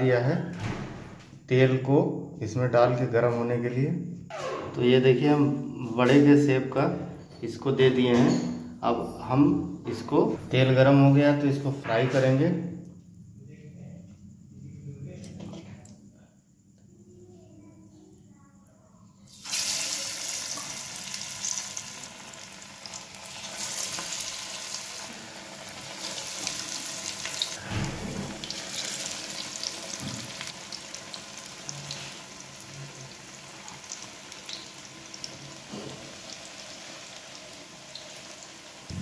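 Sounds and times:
deep-frying sizzle in hot oil: 0:19.3 - 0:39.0.

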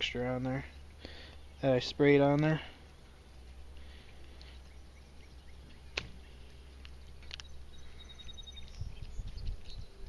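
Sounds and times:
bird trill: 0:04.0 - 0:10.0
sharp clicks: 0:05.9 - 0:06.2
wind rumble on microphone: 0:08.2 - 0:10.0.

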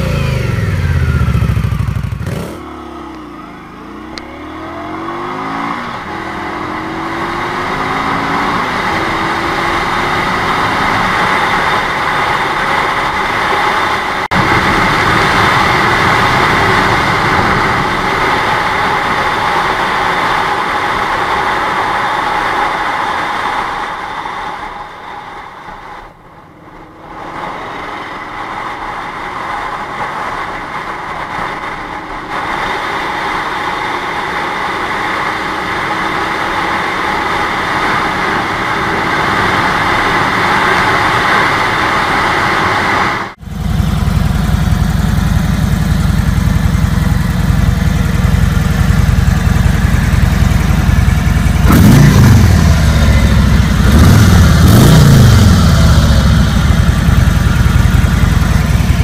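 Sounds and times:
motorcycle engine revving: 0:00.0 - 0:59.0
motorcycle riding at speed: 0:00.0 - 0:59.0
wind rush: 0:04.6 - 0:43.4
motorcycle engine idling: 0:43.4 - 0:59.0.

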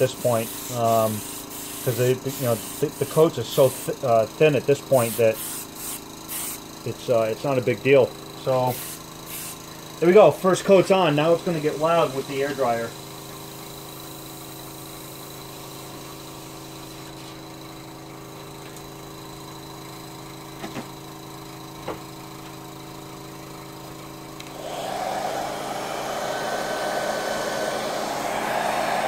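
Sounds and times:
hot air gun blowing: 0:00.0 - 0:04.0, 0:04.9 - 0:06.8, 0:08.6 - 0:09.8, 0:24.4 - 0:29.0
steady low hum: 0:22.8 - 0:29.0.

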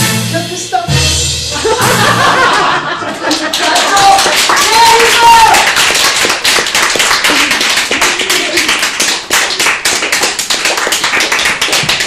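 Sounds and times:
hand clapping: 0:03.1 - 0:12.0.

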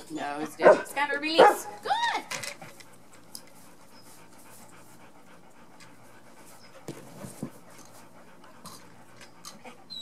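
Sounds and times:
dog panting: 0:02.6 - 0:10.0.

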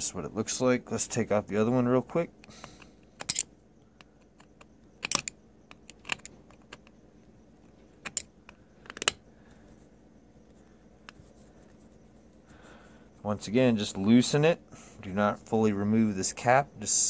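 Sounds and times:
small metal clicks and clinks: 0:03.2 - 0:03.5.

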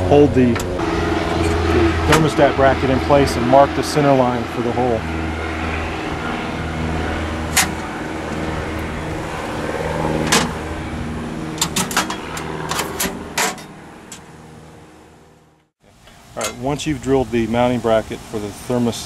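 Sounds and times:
low machine hum: 0:00.0 - 0:16.1.

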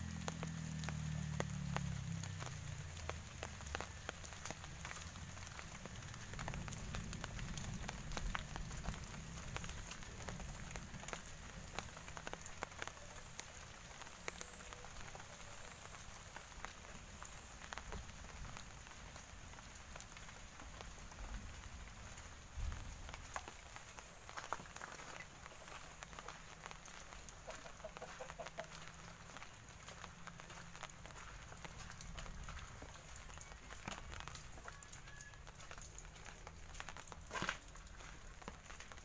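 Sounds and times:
rain pattering on leaves: 0:00.0 - 0:39.0.

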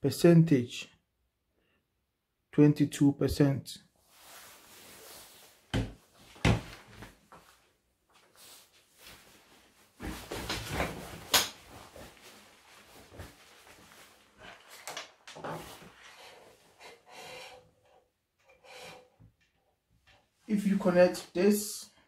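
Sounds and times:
rustling: 0:04.1 - 0:16.2.

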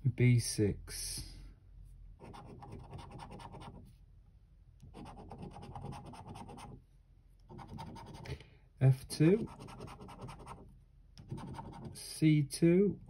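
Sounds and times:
coin scratching scratchcard: 0:02.2 - 0:03.8, 0:05.0 - 0:06.8, 0:07.5 - 0:08.3, 0:09.4 - 0:10.6, 0:11.2 - 0:12.0.

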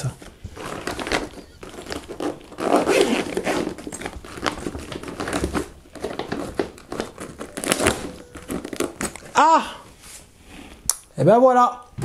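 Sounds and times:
nylon fabric rustling: 0:00.1 - 0:10.4
zipper being pulled: 0:00.6 - 0:09.4.

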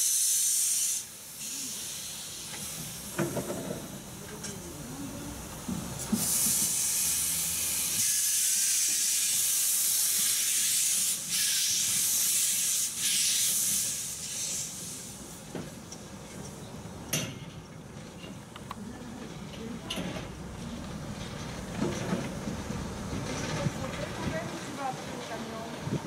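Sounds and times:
steam locomotive hissing: 0:00.0 - 0:16.3.

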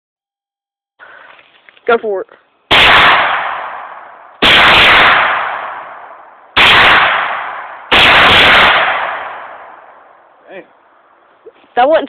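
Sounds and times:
rifle shots: 0:02.7 - 0:10.1.

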